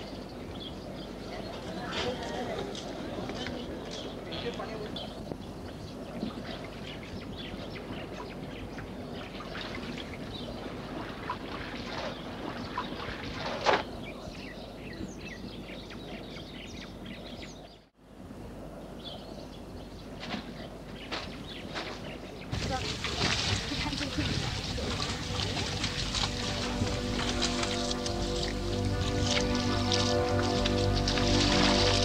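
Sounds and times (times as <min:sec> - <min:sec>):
small birds chirping: 0:00.0 - 0:18.0
water splashing and trickling: 0:05.7 - 0:14.0, 0:21.8 - 0:32.0
loud splash: 0:22.5 - 0:32.0.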